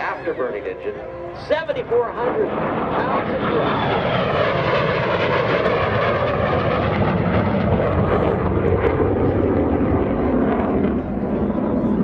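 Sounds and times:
jet fighter afterburner roar: 0.0s - 12.0s.

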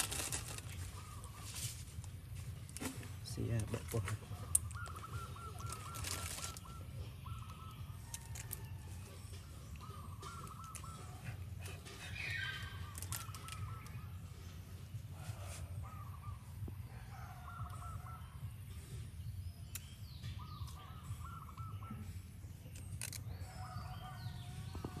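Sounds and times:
wavering animal calls: 4.1s - 14.6s.

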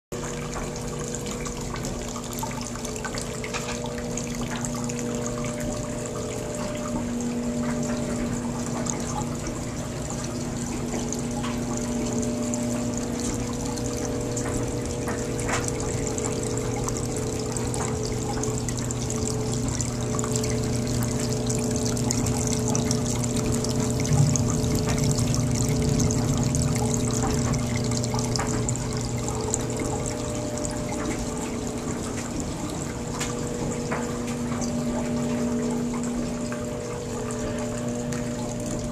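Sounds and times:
water running and trickling: 0.1s - 38.9s
low hum: 2.2s - 38.9s.

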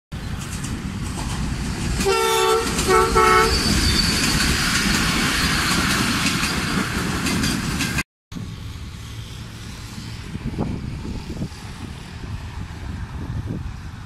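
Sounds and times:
train rumble and wheel clatter: 0.2s - 14.0s
train horn blasts: 2.0s - 3.7s.

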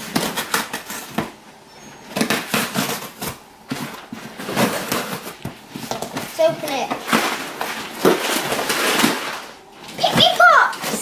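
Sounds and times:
scissors cutting packing tape: 0.0s - 1.3s, 2.1s - 3.4s.

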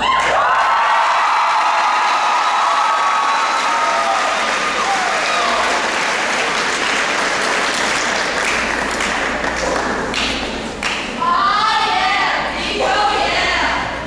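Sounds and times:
audience applauding and cheering: 0.0s - 11.1s.

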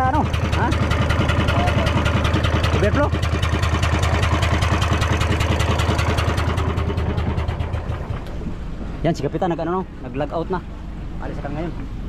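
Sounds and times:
engine knocking: 0.0s - 8.9s
low engine hum: 0.0s - 12.0s.

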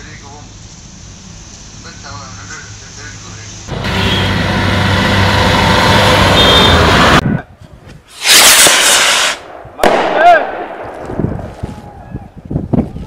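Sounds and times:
loud rush of noise: 3.7s - 7.2s
vehicle driving past on highway: 3.7s - 7.2s.

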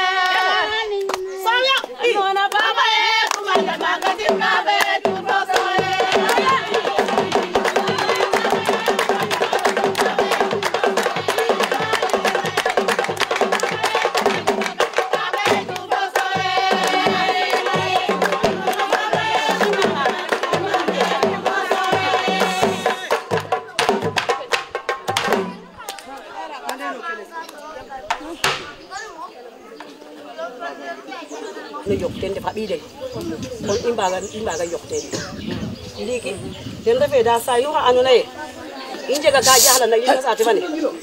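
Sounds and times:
voices singing: 0.0s - 41.0s
fast dense percussion: 3.5s - 25.8s.

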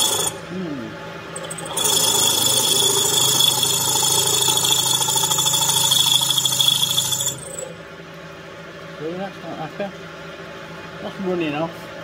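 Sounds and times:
milling machine drilling metal: 0.0s - 0.4s, 1.4s - 7.6s.

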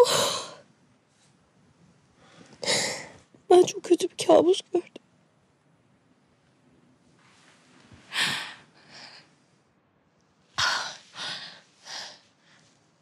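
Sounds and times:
woman breathing heavily: 2.2s - 3.3s, 8.0s - 9.6s, 10.6s - 12.8s.

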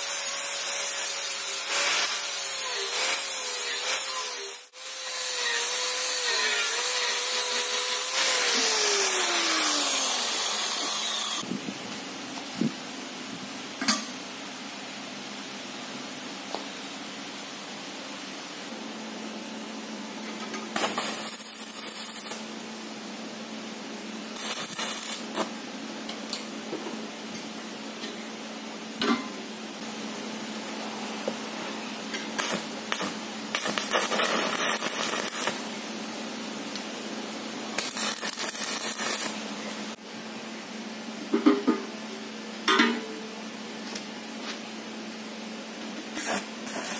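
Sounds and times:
welding arc crackling: 0.0s - 9.2s, 20.8s - 22.5s, 24.4s - 25.5s, 32.4s - 35.7s, 37.7s - 39.5s, 46.2s - 46.9s
angle grinder grinding steel: 0.0s - 11.4s.

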